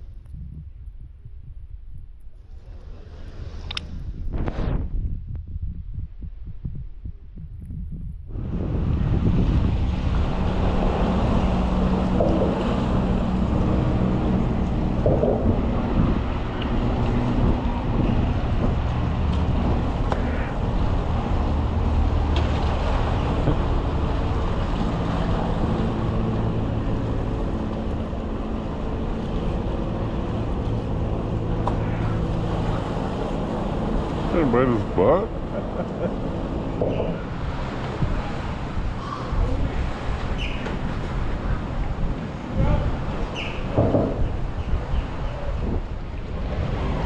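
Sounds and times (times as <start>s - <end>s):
wind on microphone: 0.0s - 47.0s
engine droning: 8.3s - 47.0s.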